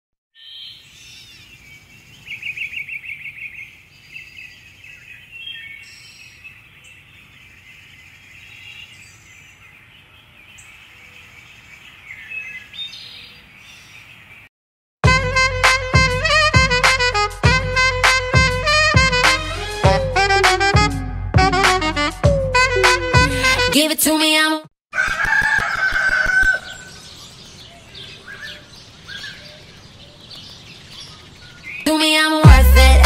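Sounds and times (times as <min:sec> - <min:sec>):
birds chirping and trilling: 0:00.4 - 0:14.5, 0:25.0 - 0:32.2.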